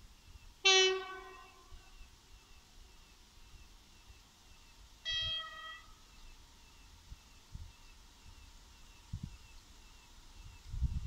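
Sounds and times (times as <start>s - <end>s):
locomotive horn blast: 0.6s - 1.8s, 5.1s - 5.9s.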